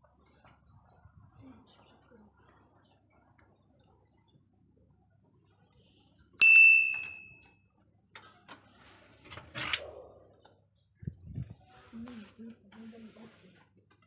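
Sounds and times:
brass bell ringing: 0:06.4 - 0:07.4.

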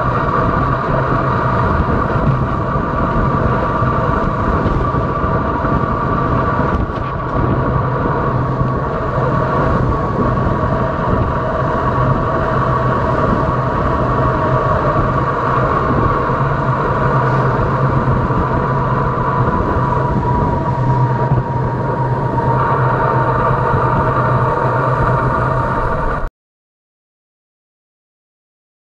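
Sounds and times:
constant hum: 0:00.0 - 0:26.3
wind rushing: 0:00.0 - 0:26.3.

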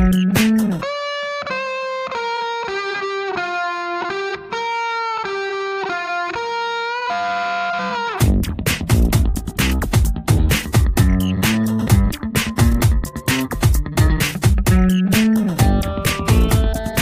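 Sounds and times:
background music with drum beat: 0:00.0 - 0:00.8, 0:08.2 - 0:17.0.

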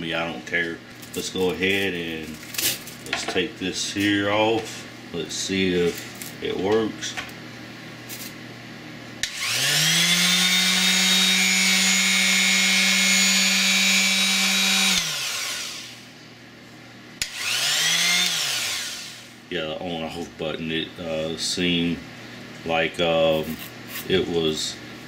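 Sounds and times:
detail sander motor whine: 0:09.2 - 0:16.0, 0:17.2 - 0:19.4.

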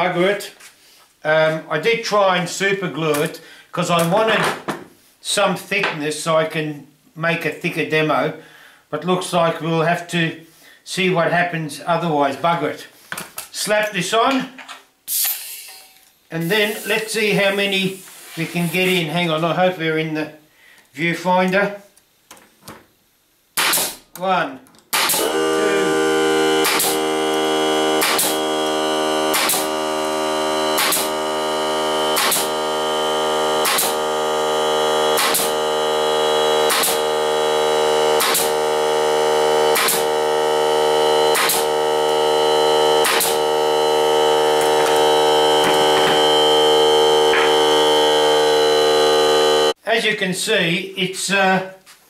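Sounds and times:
brad nailer firing into wood: 0:23.6 - 0:24.1, 0:24.9 - 0:28.6, 0:29.2 - 0:30.0, 0:30.7 - 0:31.3, 0:32.0 - 0:32.9, 0:33.6 - 0:34.2, 0:35.0 - 0:35.8, 0:36.4 - 0:38.9, 0:39.6 - 0:42.2, 0:42.8 - 0:48.5
air compressor pump running: 0:24.9 - 0:49.8.

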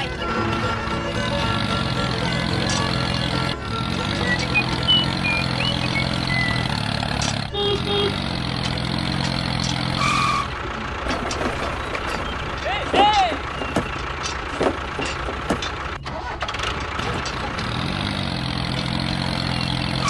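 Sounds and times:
tractor engine running: 0:00.0 - 0:20.0.

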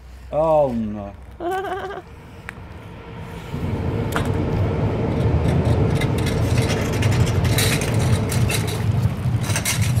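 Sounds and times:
loud low rumble: 0:01.2 - 0:10.0
metal trolley frame clattering: 0:05.3 - 0:10.0.

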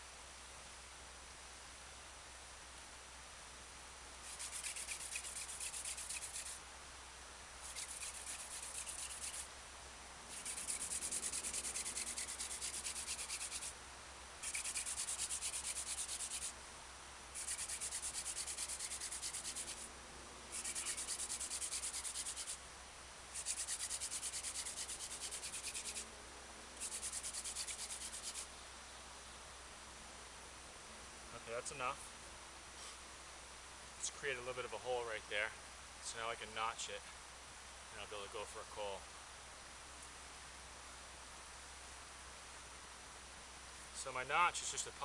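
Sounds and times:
wood rubbing on wood: 0:04.3 - 0:06.6, 0:07.7 - 0:09.4, 0:10.3 - 0:13.7, 0:14.4 - 0:16.5, 0:17.4 - 0:19.9, 0:20.5 - 0:22.6, 0:23.4 - 0:26.0, 0:26.8 - 0:28.4.

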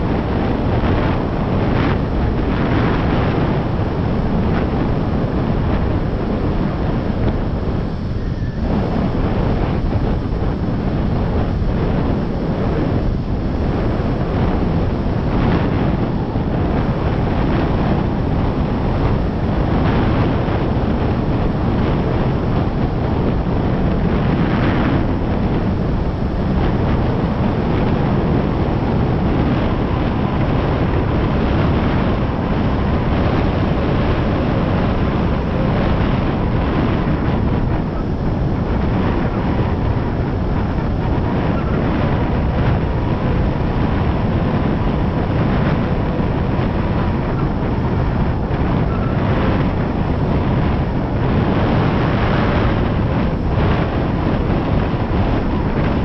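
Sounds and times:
faint steady whine: 0:00.0 - 0:56.0
wind buffeting microphone: 0:00.0 - 0:56.0.

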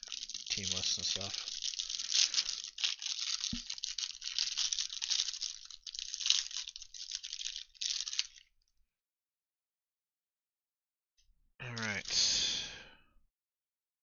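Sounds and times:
plastic wrapping tearing and crinkling: 0:00.0 - 0:08.5.

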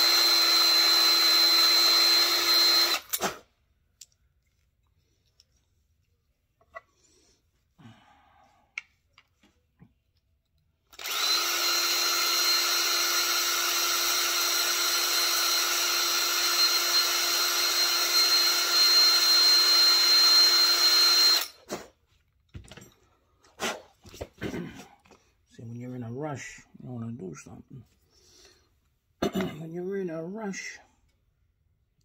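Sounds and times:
cordless drill running: 0:00.0 - 0:03.2, 0:10.9 - 0:21.6.

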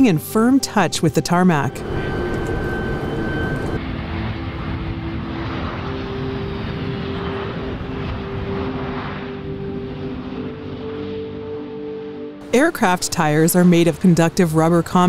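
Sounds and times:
low steady hum: 0:01.6 - 0:03.8
jet aircraft landing: 0:01.6 - 0:13.1.

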